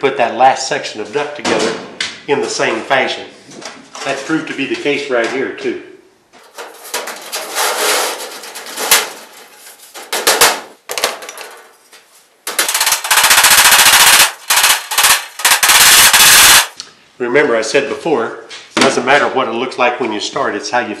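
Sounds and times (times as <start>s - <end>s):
sheet metal clattering and scraping: 6.4s - 13.2s.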